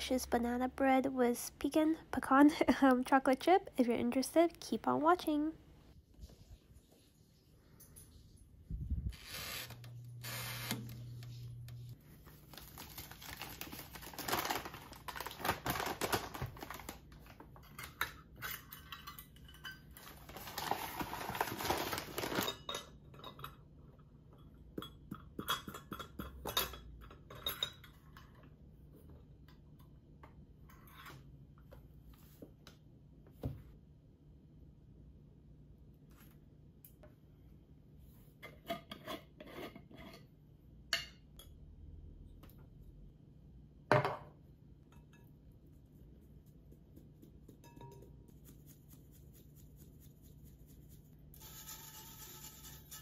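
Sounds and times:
glass bowl and utensils clinking: 17.6 - 20.5, 22.2 - 23.6, 24.4 - 28.4, 47.5 - 48.3.

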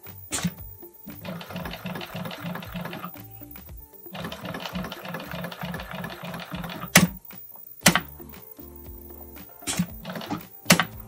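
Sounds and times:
sewing machine stitching: 1.2 - 3.2, 4.1 - 7.2
sharp click: 6.8 - 8.5.

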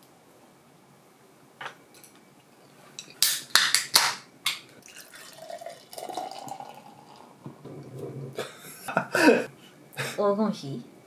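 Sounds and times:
beer can opening cracks and hiss: 3.1 - 7.3
beer pouring into glass: 4.8 - 7.4.

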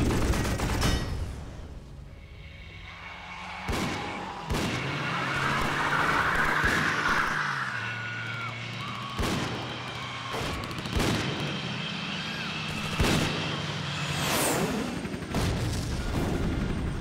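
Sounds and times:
low steady drone: 1.7 - 7.0.

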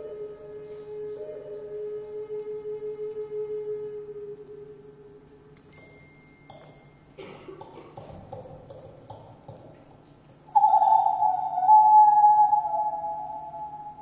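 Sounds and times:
high held whistling tone: 10.5 - 14.0
person imitating bird calls: 10.5 - 14.0.

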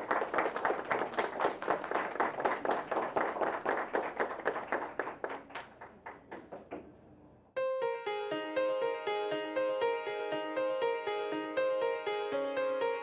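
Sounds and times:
people applauding: 0.0 - 6.9.

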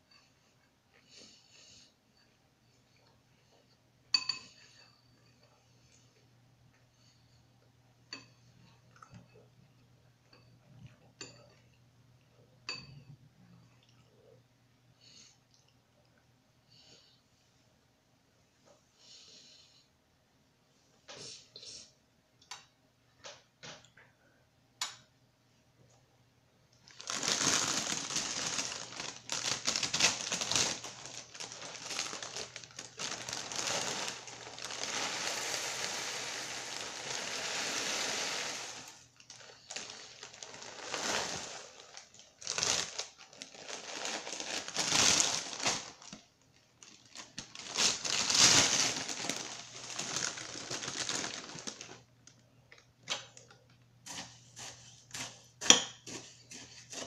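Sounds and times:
plastic cereal bag crinkling: 26.8 - 52.4.

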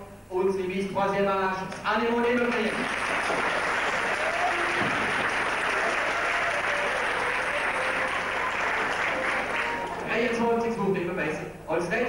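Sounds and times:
audience applauding: 2.4 - 10.4.

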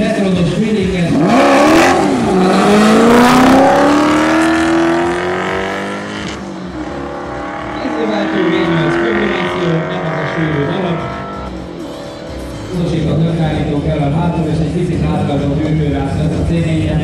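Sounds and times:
race car engines revving hard: 0.0 - 17.0.

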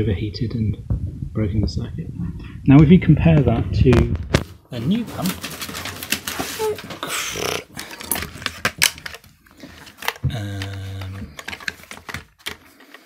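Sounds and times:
plastic parts clicking and clattering: 4.3 - 13.0
person saying erm: 6.6 - 7.7, 10.2 - 11.4.

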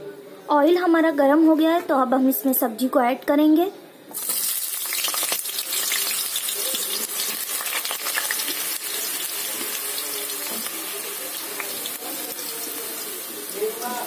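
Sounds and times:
potatoes sizzling in hot oil: 4.2 - 14.0.

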